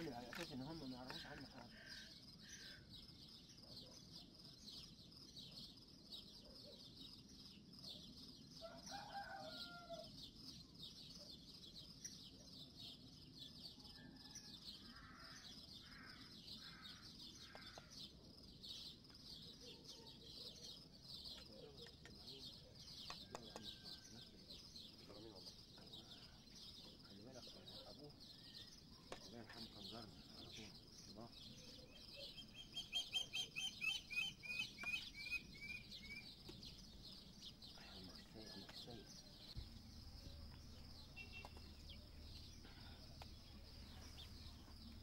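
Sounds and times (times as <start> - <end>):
insects chirring: 0.0 - 45.0
rooster crowing: 8.6 - 10.1.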